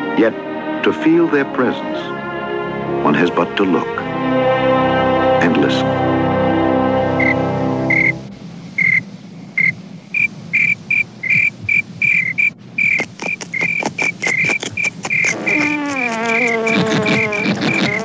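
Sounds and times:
cricket chirping: 0:07.2 - 0:18.0
bee buzzing: 0:09.6 - 0:18.0
rapid dry clicking: 0:09.6 - 0:18.0.

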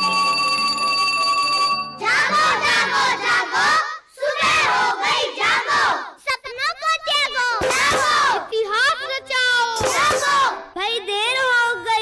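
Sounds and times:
children shouting together: 0:02.0 - 0:06.2, 0:07.2 - 0:08.5.

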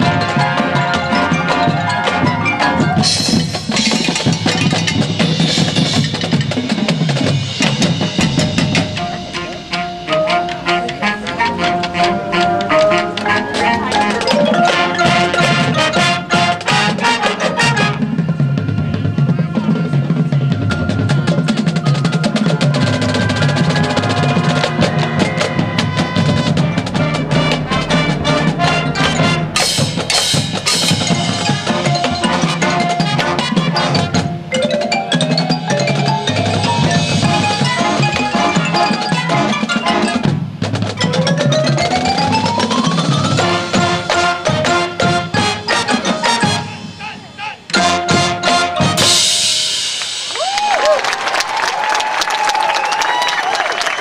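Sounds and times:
brass and winds: 0:00.0 - 0:06.0, 0:07.3 - 0:34.7, 0:36.2 - 0:40.9, 0:41.6 - 0:54.0
marimbas and mallet percussion: 0:00.0 - 0:50.6
drumline: 0:00.0 - 0:54.0
crashing cymbal hits: 0:24.9 - 0:32.0.

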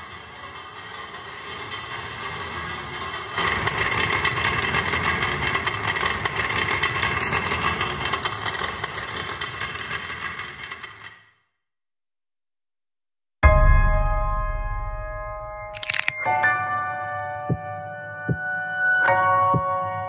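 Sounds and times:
loud mechanical rumble: 0:00.0 - 0:11.3.

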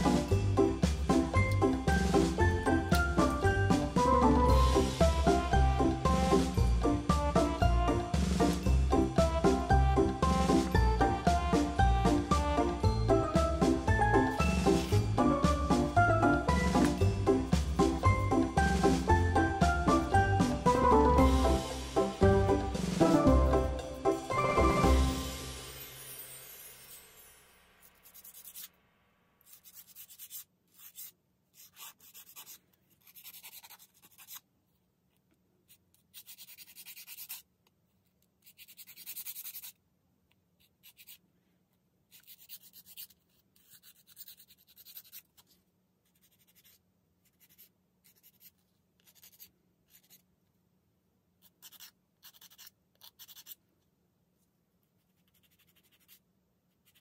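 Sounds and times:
nail file rasping on nails: 0:28.0 - 0:28.7, 0:29.4 - 0:34.4, 0:36.0 - 0:37.5, 0:38.4 - 0:39.8, 0:40.6 - 0:41.2, 0:42.2 - 0:45.5, 0:46.1 - 0:50.2, 0:51.4 - 0:53.6, 0:55.1 - 0:56.2, 0:56.8 - 0:57.0.

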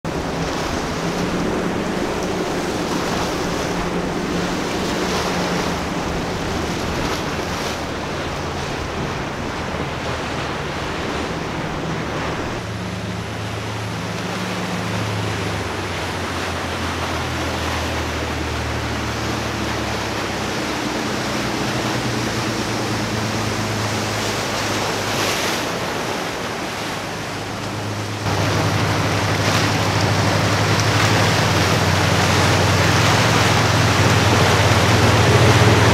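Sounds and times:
boat engines running: 0:00.0 - 0:35.9
rushing boat wake: 0:00.0 - 0:35.9
surf: 0:00.0 - 0:35.9
wind on microphone: 0:19.5 - 0:35.9.

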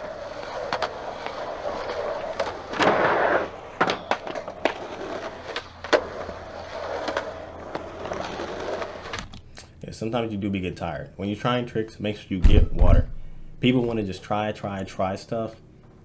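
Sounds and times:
skateboard clacks: 0:00.0 - 0:09.2
skateboard wheels rolling: 0:00.0 - 0:09.4.

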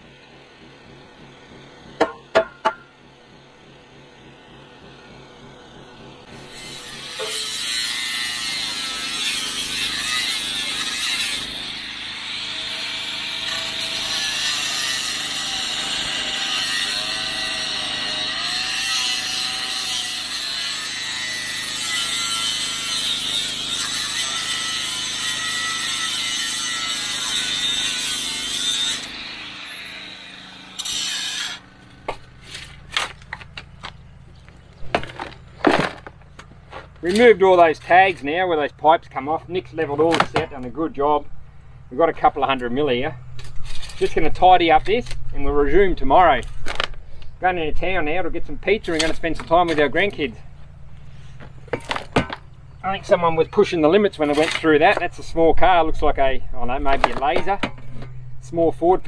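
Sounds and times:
angle grinder cutting steel: 0:04.2 - 0:34.0
shovel scraping in dirt: 0:28.4 - 0:38.3, 0:43.4 - 0:44.4, 0:54.1 - 0:55.2.

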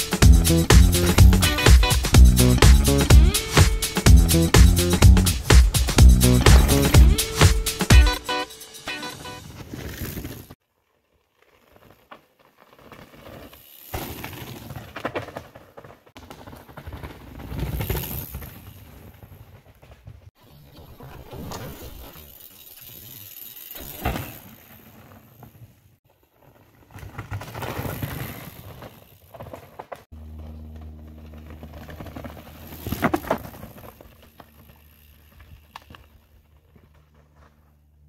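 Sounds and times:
bike rattling: 0:00.0 - 0:08.2, 0:08.8 - 0:38.0
bike tyres rumbling on dirt: 0:05.5 - 0:07.1, 0:09.3 - 0:38.0.

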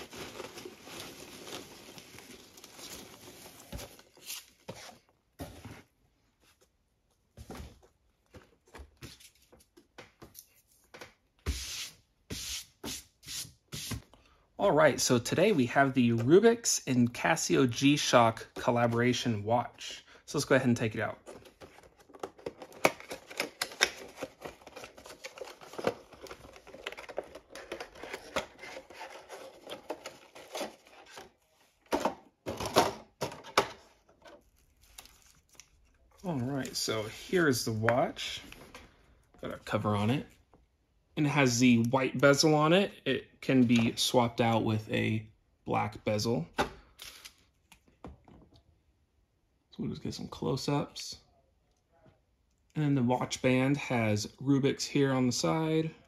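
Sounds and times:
packaging clicks and rustles: 0:21.2 - 0:31.4.

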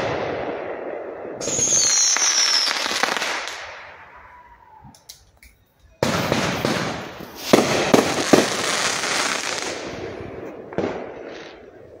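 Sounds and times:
firework bursts: 0:00.0 - 0:12.0
firework crackling shower: 0:01.0 - 0:12.0
sharp firework bangs: 0:06.0 - 0:11.7.

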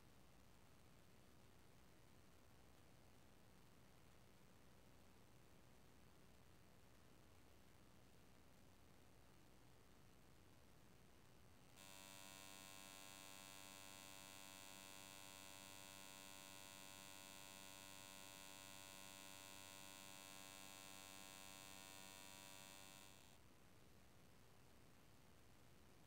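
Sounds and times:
electrical hum with buzzing whine: 0:11.6 - 0:23.4.

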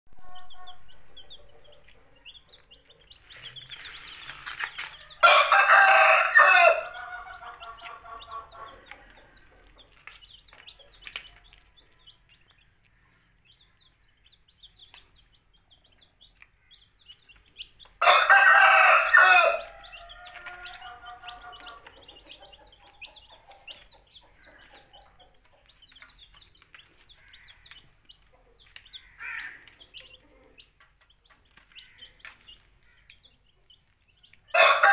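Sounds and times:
baby chicks peeping: 0:00.1 - 0:34.9
rooster crowing: 0:05.1 - 0:07.8, 0:18.0 - 0:21.9, 0:34.5 - 0:34.9.

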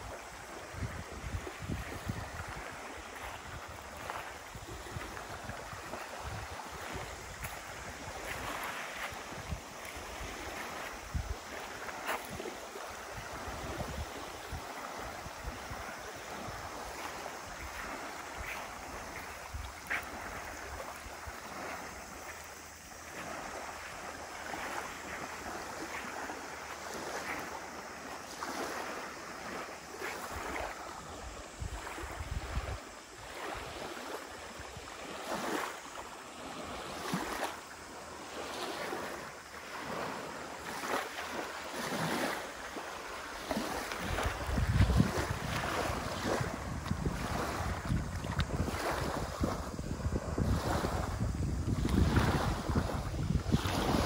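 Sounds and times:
wind buffeting microphone: 0:00.0 - 0:27.5, 0:28.4 - 0:35.6, 0:43.4 - 0:54.0
waves lapping on pebbly shore: 0:00.0 - 0:54.0.

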